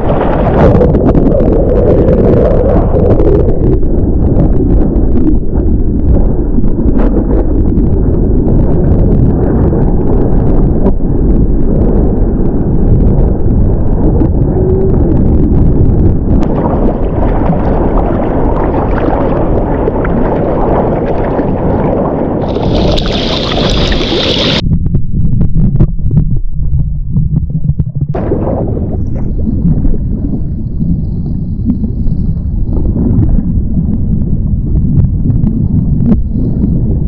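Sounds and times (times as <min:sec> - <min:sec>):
wind buffeting microphone: 0:00.0 - 0:37.0
water rushing and splashing: 0:16.4 - 0:24.6.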